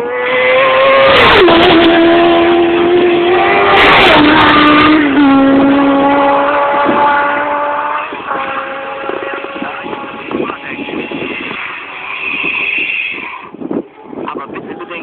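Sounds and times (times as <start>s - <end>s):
racing motorcycles passing: 0.0s - 15.0s.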